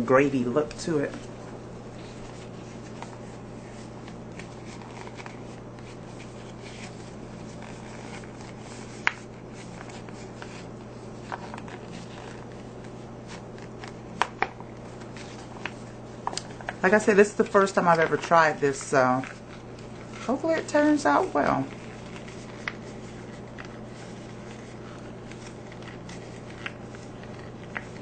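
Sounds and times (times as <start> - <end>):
steady low hum: 0.0 - 28.0
plastic pouch crinkling: 2.0 - 28.0.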